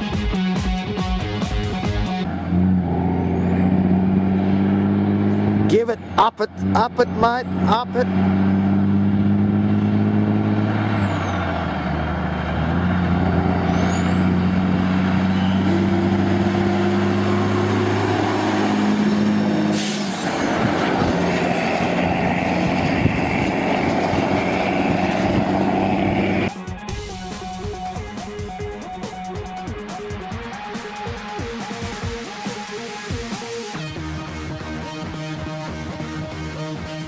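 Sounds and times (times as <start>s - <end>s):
diesel truck engine driving past: 2.2s - 29.6s.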